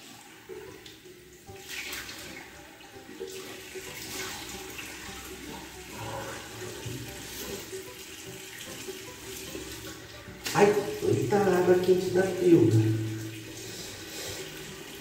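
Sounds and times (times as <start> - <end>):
tap water running into sink: 0.0 - 15.0
hands splashing water: 0.8 - 2.5.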